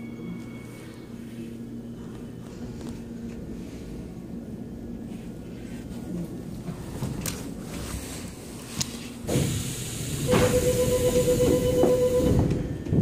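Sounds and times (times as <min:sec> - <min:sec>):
train rushing hiss in tunnel: 0:08.0 - 0:12.9.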